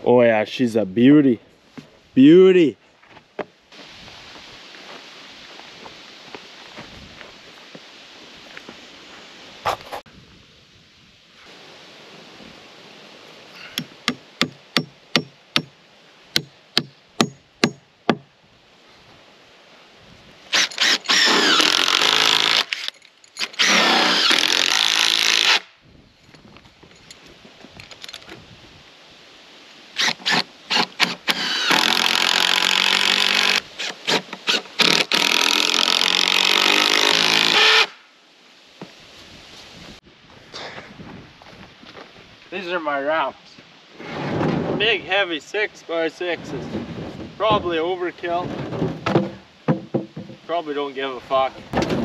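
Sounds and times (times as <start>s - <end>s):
hammer striking timber: 13.8s - 15.7s, 16.4s - 18.2s, 48.8s - 50.4s
cordless drill running: 20.6s - 22.6s, 23.6s - 25.6s, 30.0s - 33.6s.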